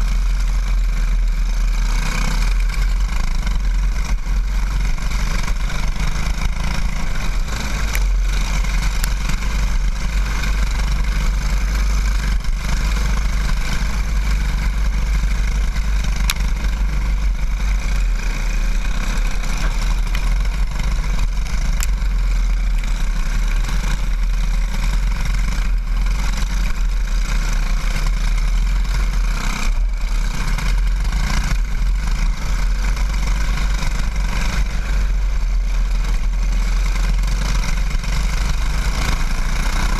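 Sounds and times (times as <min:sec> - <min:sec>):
kart engine running hard: 0:00.0 - 0:39.9.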